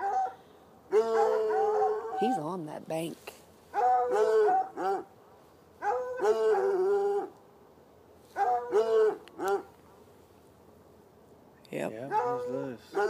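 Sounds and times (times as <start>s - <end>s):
hound barking: 0.0s - 2.4s, 3.7s - 5.1s, 5.8s - 7.3s, 8.3s - 9.8s, 12.0s - 13.0s.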